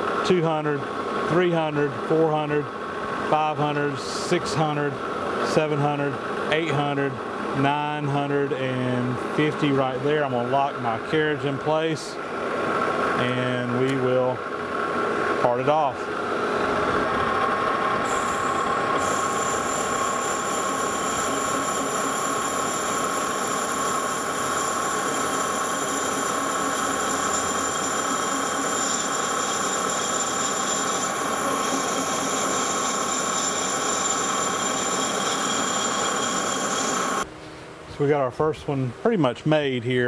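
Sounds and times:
high-pitched whine: 15.4 - 37.3
metal lathe cutting pipe: 17.5 - 37.3.

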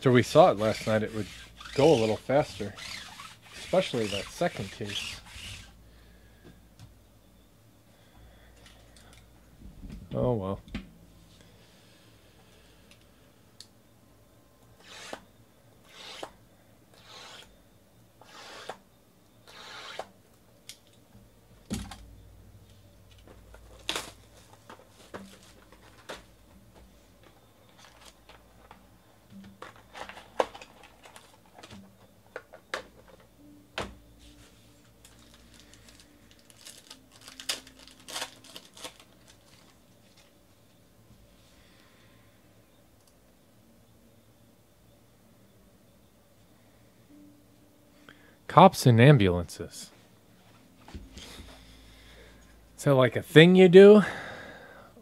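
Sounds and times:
foil pack crinkling: 23.2 - 26.2, 35.0 - 40.3.

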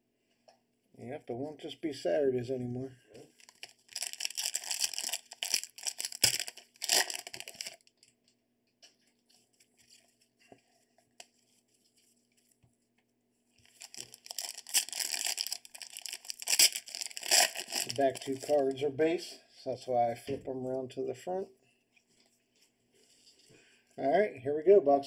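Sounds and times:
plastic wrapping crinkling and tearing: 3.3 - 8.1, 13.6 - 18.7.

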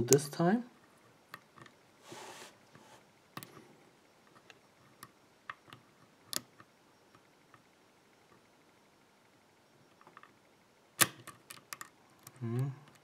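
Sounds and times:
soft rustle: 2.0 - 3.7.

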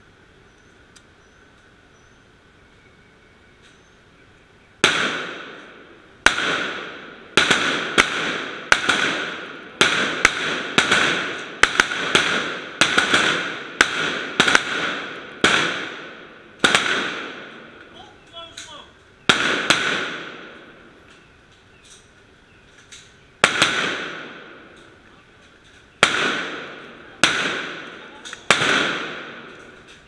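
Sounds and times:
rifle shots echoing: 4.8 - 21.0, 22.9 - 25.0, 25.9 - 30.0.

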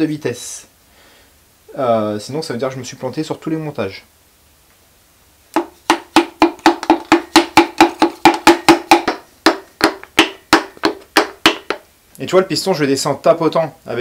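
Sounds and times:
hammer handle tapping on piston: 5.6 - 11.8.

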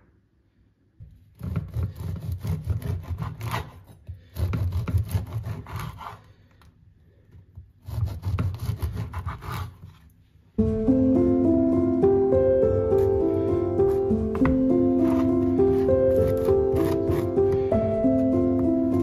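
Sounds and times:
knife sawing through crusty bread: 1.4 - 6.4, 7.8 - 10.0, 15.0 - 17.6.

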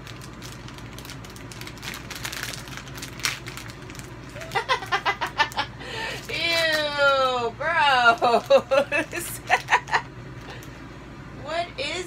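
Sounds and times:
plastic wrapper crinkling: 0.0 - 5.6, 6.2 - 7.4.

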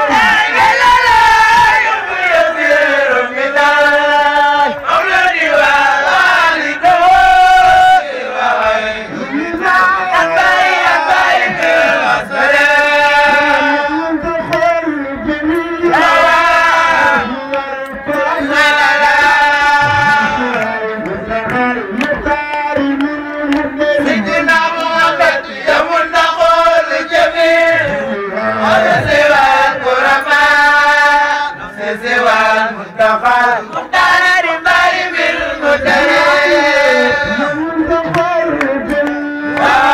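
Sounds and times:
man chanting into a microphone: 6.7 - 34.0, 35.6 - 39.9.

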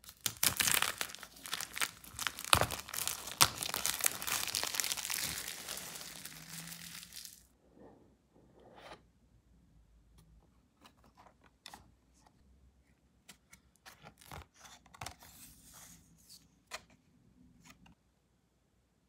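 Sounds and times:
paper and cardboard rustling: 0.4 - 7.4.

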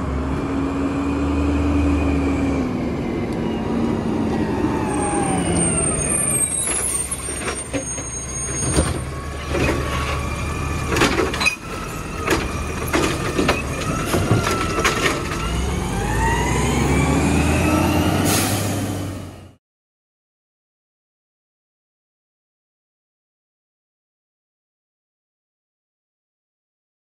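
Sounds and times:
diesel engine running: 0.0 - 19.5.

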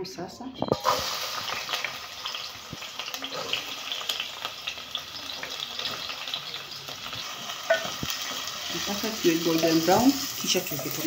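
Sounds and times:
onions sizzling in hot oil: 0.6 - 11.0.

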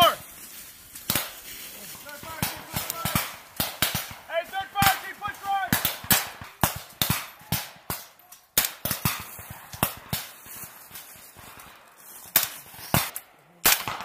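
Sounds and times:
rifle shots: 2.2 - 10.5, 12.3 - 14.0.

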